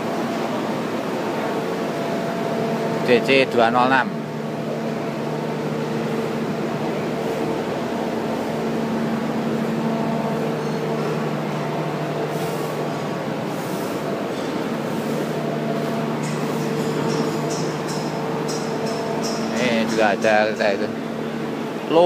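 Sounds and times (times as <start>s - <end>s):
diesel locomotive engine idling: 0.0s - 22.0s.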